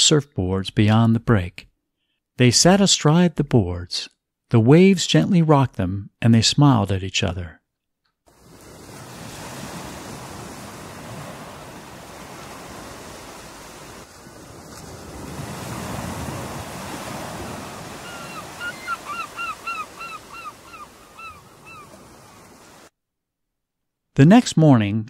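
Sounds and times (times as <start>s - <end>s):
ocean surf washing in: 8.3s - 22.9s
bird calling short falling notes: 17.6s - 22.6s.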